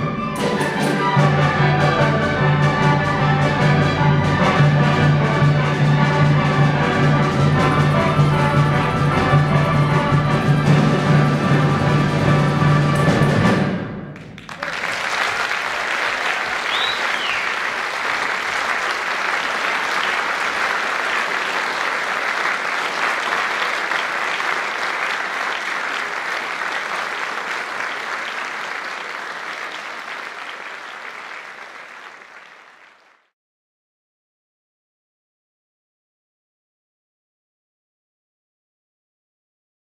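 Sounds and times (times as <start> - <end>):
audience applauding: 14.2 - 33.3.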